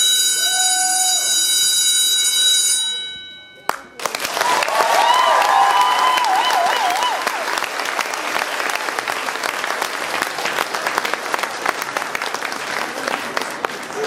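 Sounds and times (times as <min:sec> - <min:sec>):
audience applauding: 0:03.7 - 0:14.0.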